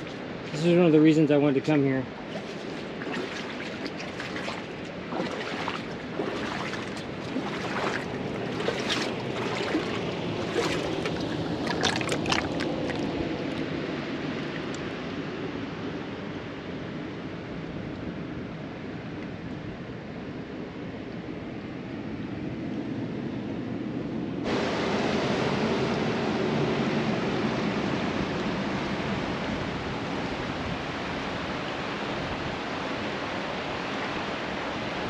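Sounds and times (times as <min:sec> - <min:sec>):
water splashes and clicks: 0:00.0 - 0:00.6, 0:02.2 - 0:13.7, 0:14.4 - 0:14.9
water lapping against rock: 0:00.0 - 0:00.7, 0:02.1 - 0:14.9
steady wash of water: 0:00.0 - 0:15.7, 0:24.4 - 0:35.0.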